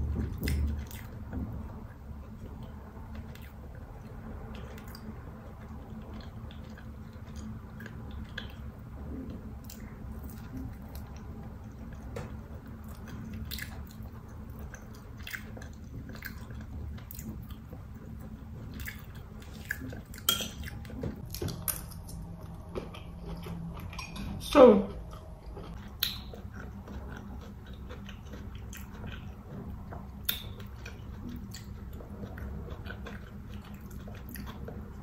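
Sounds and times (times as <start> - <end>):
chewing and biting: 25.1 - 35.0
wet mouth clicks and smacks: 25.8 - 26.4.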